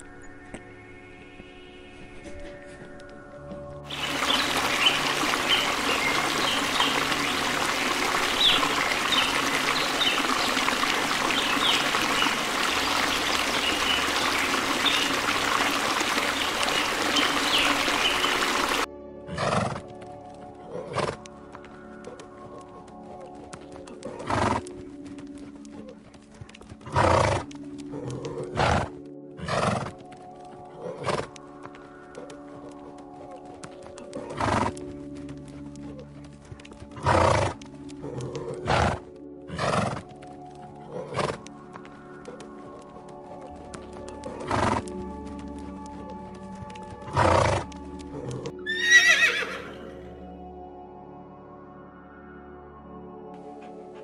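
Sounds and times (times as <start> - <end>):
background music with sustained tones: 0.0 - 54.0
horse snorting: 19.3 - 19.9, 20.6 - 21.3, 24.0 - 24.6, 26.8 - 30.0, 30.7 - 31.4, 34.0 - 34.8, 36.9 - 40.2, 40.8 - 41.5, 44.3 - 44.9, 47.0 - 50.0
horse whinnying: 48.4 - 50.1.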